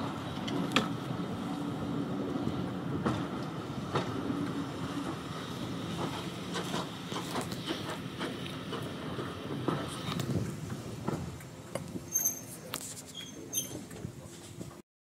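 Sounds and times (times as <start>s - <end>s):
diesel locomotive engine running: 0.0s - 12.8s
wheels clicking on track: 2.9s - 14.8s.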